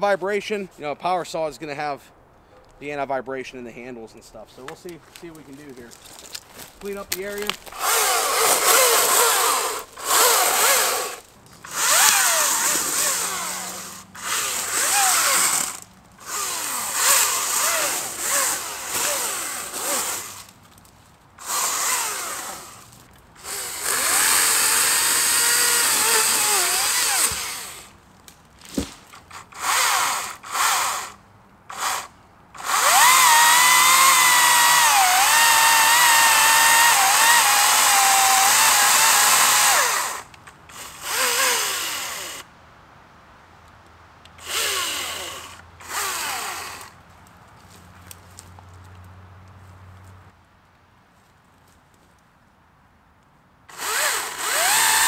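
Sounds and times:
electric chainsaw whine: 0:07.4 - 0:20.6, 0:21.4 - 0:28.0, 0:28.8 - 0:42.5, 0:44.4 - 0:47.0, 0:53.7 - 0:55.0.

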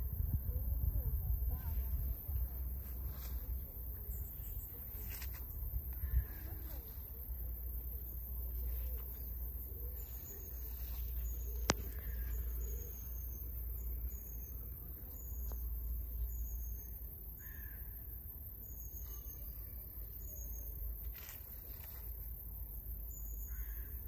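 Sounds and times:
steady low rumble: 0:00.0 - 0:16.4
small bird chirping: 0:08.5 - 0:18.0, 0:18.6 - 0:22.1
harsh low bird calls: 0:09.7 - 0:15.6.

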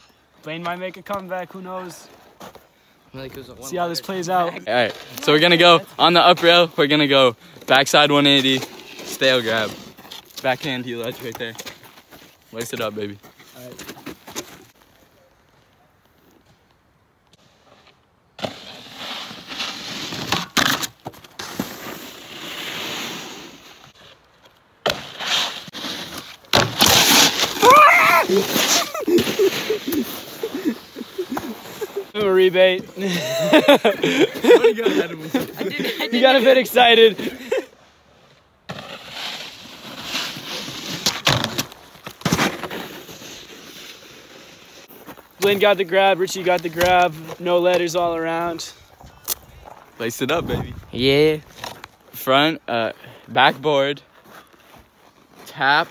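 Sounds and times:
snowboard scraping over snow: 0:18.4 - 0:20.5, 0:21.4 - 0:23.9, 0:24.9 - 0:37.6, 0:38.7 - 0:41.6
snowboard landing hits: 0:24.8 - 0:30.2.

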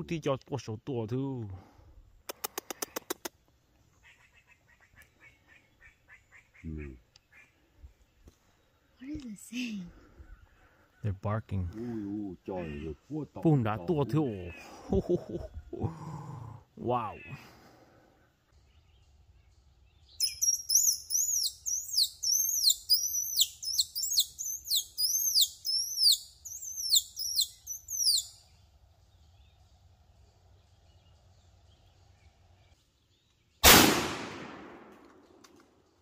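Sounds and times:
bird chirping: 0:03.9 - 0:15.8, 0:18.4 - 0:33.6
shotgun shot: 0:33.6 - 0:35.2.

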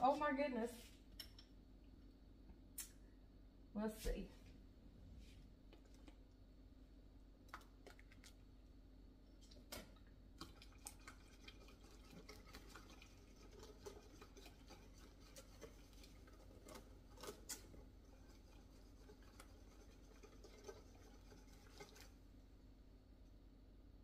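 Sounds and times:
wooden spatula scraping saucepan: 0:11.0 - 0:22.2.

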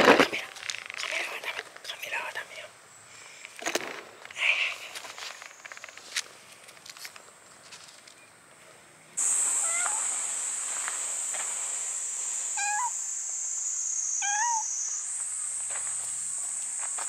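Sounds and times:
cicadas buzzing: 0:00.0 - 0:06.7, 0:09.1 - 0:17.0
cat meowing: 0:09.6 - 0:10.0, 0:12.6 - 0:12.9, 0:14.2 - 0:14.6.

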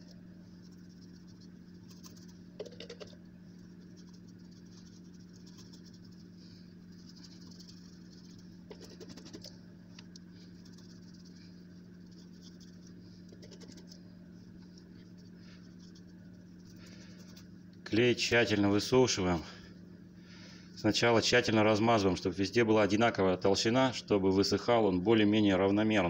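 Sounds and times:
brush dabbing on rubber: 0:00.0 - 0:17.6
steady low hum: 0:00.0 - 0:26.0.

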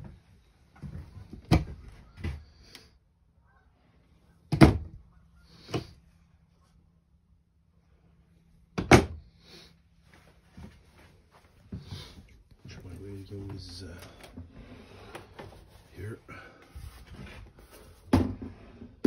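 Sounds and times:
wooden cabinet doors opening and shutting: 0:00.8 - 0:02.5, 0:04.5 - 0:05.0, 0:08.8 - 0:09.2.

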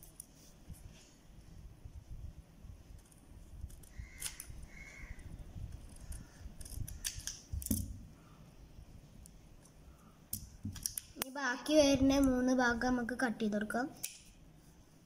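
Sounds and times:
scissors cutting stiff paper: 0:05.8 - 0:07.4.

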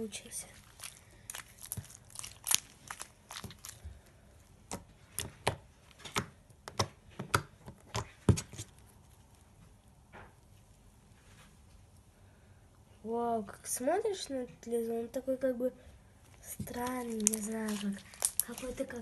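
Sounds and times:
slime clicking and popping: 0:00.7 - 0:03.8, 0:04.6 - 0:08.8, 0:16.7 - 0:18.8.

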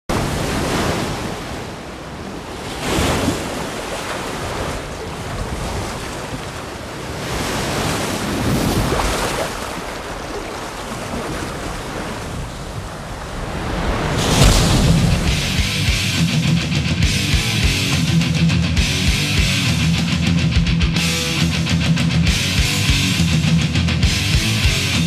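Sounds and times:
ocean waves breaking: 0:00.1 - 0:17.0
wind: 0:00.1 - 0:17.1.

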